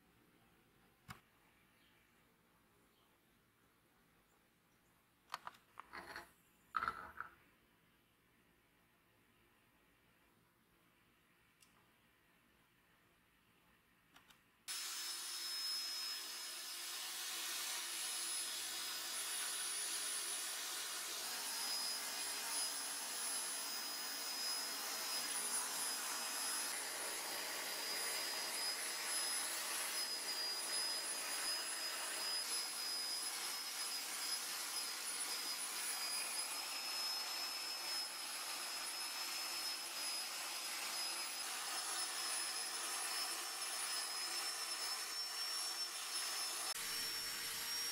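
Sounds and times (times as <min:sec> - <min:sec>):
wheel grinding and brushing steel: 0:05.9 - 0:06.3
electric motor whine: 0:14.7 - 0:47.9.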